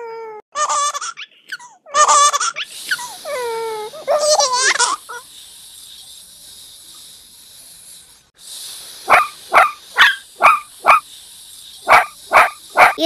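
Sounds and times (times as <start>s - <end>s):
steady high hiss: 2.1s - 13.0s
dog barking: 9.1s - 11.0s, 11.8s - 13.0s.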